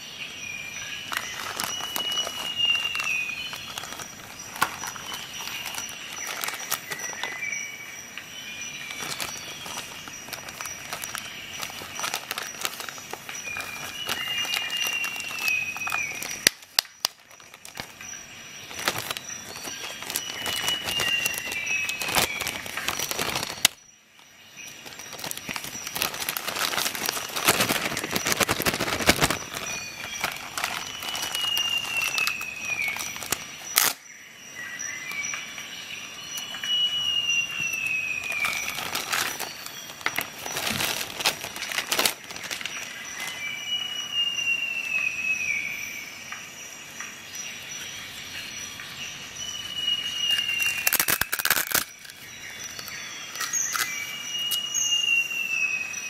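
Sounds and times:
faint steady high tone: 0.0 - 41.5
plastic bag crinkling: 0.8 - 7.8, 8.7 - 23.8, 24.7 - 34.0, 37.5 - 43.6, 50.0 - 54.8.

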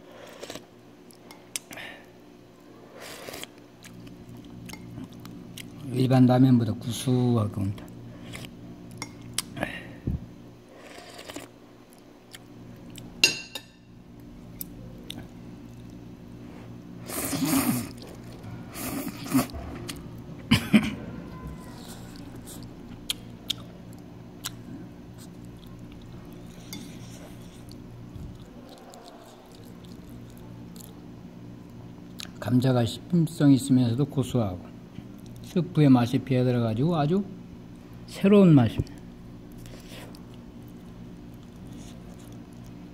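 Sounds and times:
person chewing: 0.2 - 1.8, 3.0 - 5.9, 7.9 - 9.6, 10.8 - 13.2, 14.2 - 16.1, 17.0 - 20.1, 21.7 - 31.0, 38.9 - 42.9
person slurping noodles: 17.0 - 19.5.

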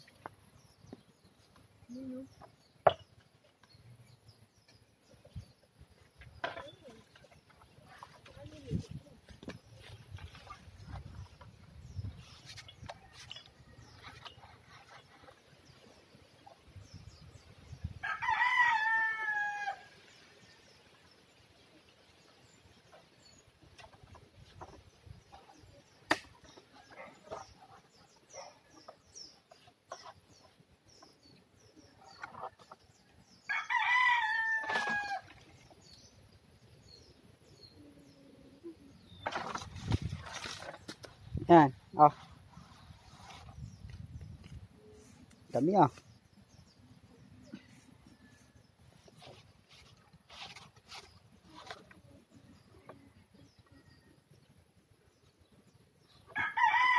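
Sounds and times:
rooster crowing: 18.0 - 19.9, 56.4 - 56.9.

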